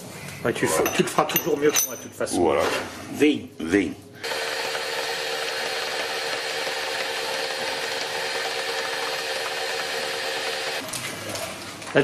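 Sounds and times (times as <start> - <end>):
electric meat grinder running: 4.2 - 10.8.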